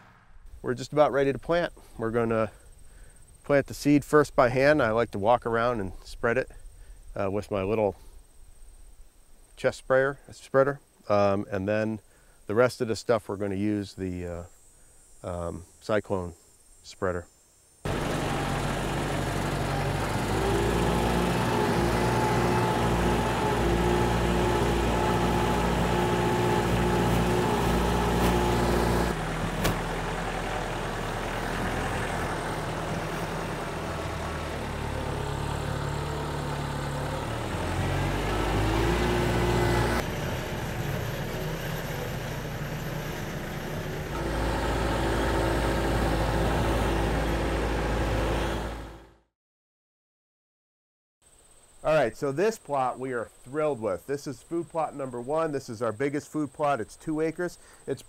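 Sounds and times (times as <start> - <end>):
tractor engine running: 17.9 - 49.2.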